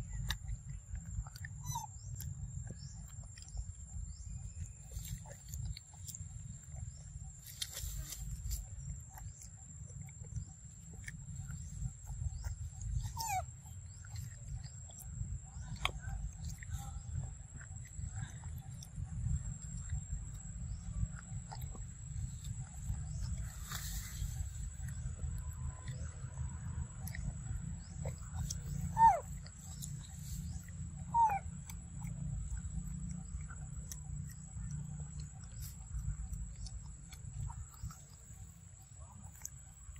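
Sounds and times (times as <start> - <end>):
low rumble: 0.0 - 39.9
monkey chewing fruit: 0.0 - 39.9
macaque coo calls: 13.0 - 13.4, 28.4 - 30.4, 31.1 - 31.5.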